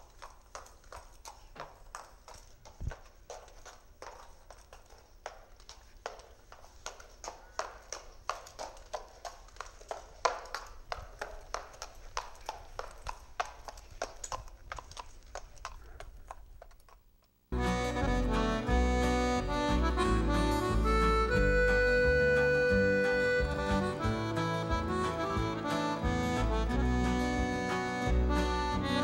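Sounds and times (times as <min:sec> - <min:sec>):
horse hooves clip-clopping: 0:00.0 - 0:18.1
music: 0:17.6 - 0:29.0.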